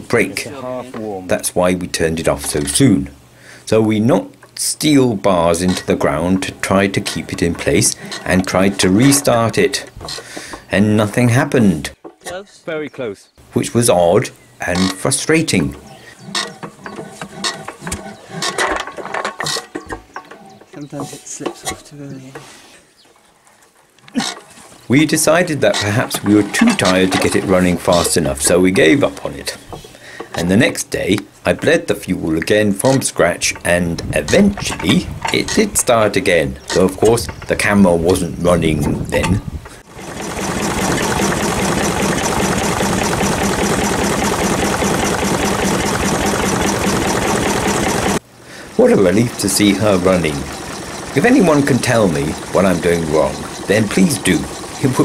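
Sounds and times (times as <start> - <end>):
engine crank clicks and knocks: 5.6 - 10.6, 14.8 - 21.8, 32.4 - 35.7, 39.2 - 55.0
stationary diesel engine running: 39.8 - 55.0.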